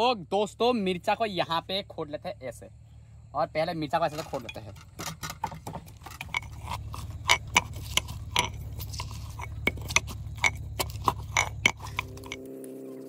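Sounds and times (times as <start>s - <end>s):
metal pestle pounding in steel tumbler: 4.1s - 12.4s.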